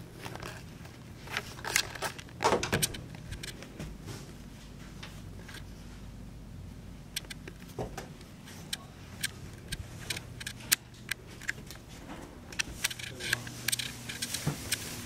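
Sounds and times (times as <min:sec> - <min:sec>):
steady low hum: 0:00.0 - 0:15.0
sharp clicks and light taps: 0:07.1 - 0:11.8.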